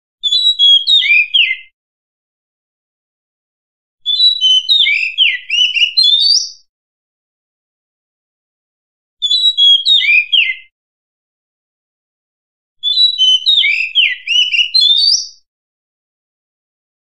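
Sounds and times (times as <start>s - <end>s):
magpie-robin singing whistled notes: 0.2s - 1.8s, 4.0s - 6.7s, 9.2s - 10.7s, 12.8s - 15.5s.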